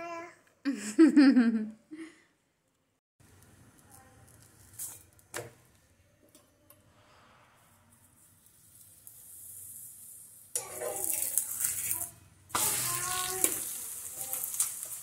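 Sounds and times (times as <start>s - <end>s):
oil sizzling on hot griddle: 8.4s - 15.0s.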